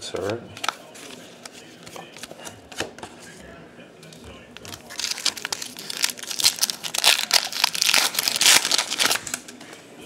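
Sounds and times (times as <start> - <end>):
foil wrapper crinkling and tearing: 4.6 - 9.4.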